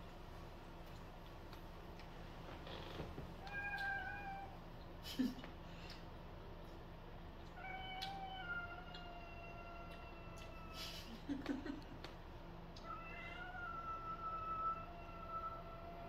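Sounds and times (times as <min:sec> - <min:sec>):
cat meowing: 0:03.4 - 0:04.6, 0:07.6 - 0:10.8, 0:12.8 - 0:16.0.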